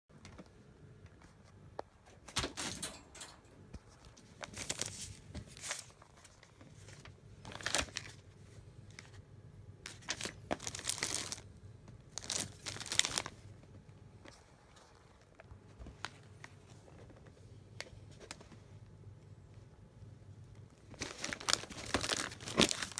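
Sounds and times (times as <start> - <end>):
plastic pouches crinkling: 4.4 - 8.2, 9.9 - 11.5, 12.1 - 13.4, 20.9 - 22.9.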